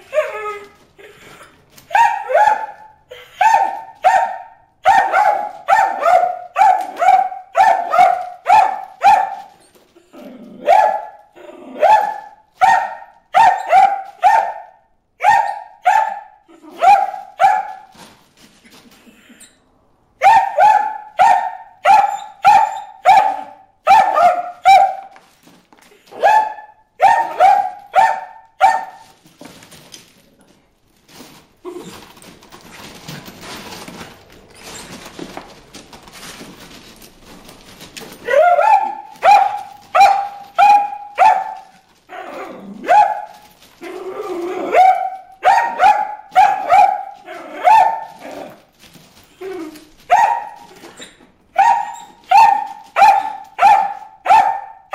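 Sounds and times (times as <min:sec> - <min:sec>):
faint rustling: 0:00.0 - 0:14.8, 0:16.5 - 0:54.9
dog barking: 0:01.9 - 0:09.6, 0:10.6 - 0:11.2, 0:11.8 - 0:17.9, 0:20.2 - 0:25.2, 0:26.1 - 0:29.1, 0:38.3 - 0:43.5, 0:44.6 - 0:48.6, 0:50.1 - 0:50.8, 0:51.5 - 0:54.9.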